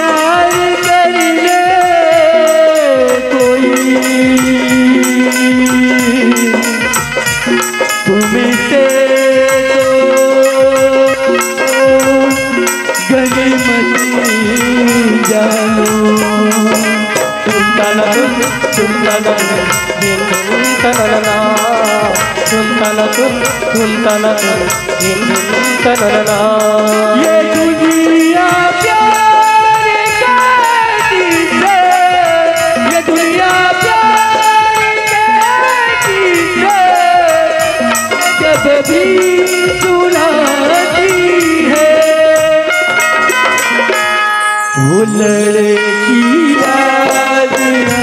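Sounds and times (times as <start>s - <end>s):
man singing: 0.0s - 44.1s, 44.7s - 48.0s
hand drums: 0.0s - 48.0s
harmonium: 0.0s - 48.0s
rattling percussion: 0.0s - 48.0s.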